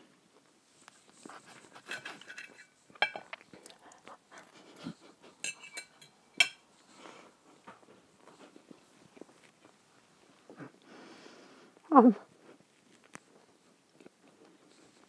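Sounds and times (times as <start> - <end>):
cutlery clinking on a plate: 1.8 - 3.4, 5.4 - 6.6.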